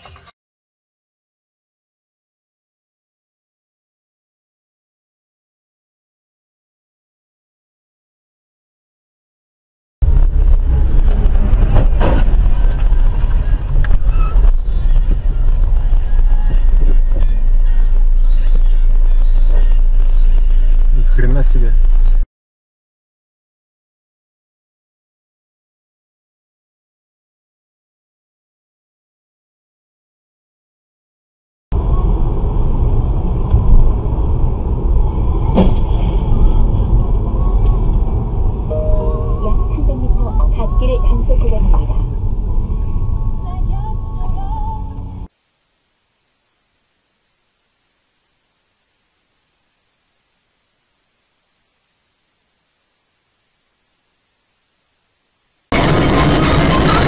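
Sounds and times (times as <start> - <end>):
car road and engine rumble: 10.0 - 22.3, 31.8 - 45.4, 47.0 - 57.0.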